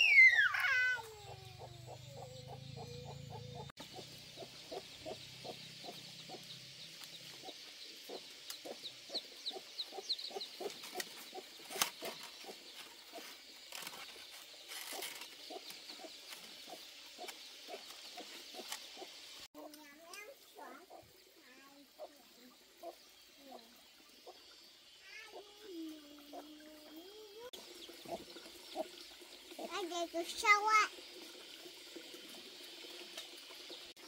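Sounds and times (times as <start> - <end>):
chickens clucking: 0.8 - 6.5, 7.3 - 13.4, 20.5 - 24.4.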